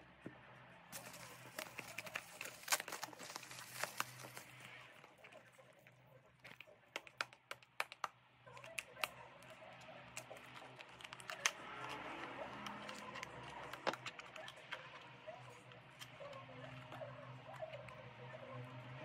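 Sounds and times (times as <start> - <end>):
packaging rustling: 0.9 - 8.1, 8.7 - 15.0
fingernail clicks on cardboard: 6.5 - 14.8.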